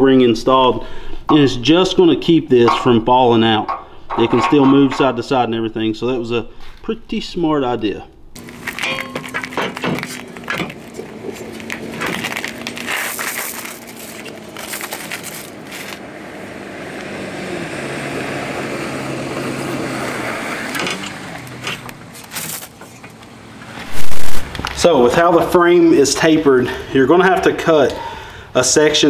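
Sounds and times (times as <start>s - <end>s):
gravel crunching: 8.4s - 17.2s, 19.3s - 25.6s.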